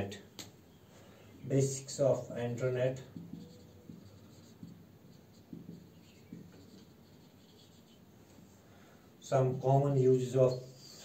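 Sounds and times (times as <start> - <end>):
marker writing on whiteboard: 1.6 - 8.6, 10.4 - 11.0.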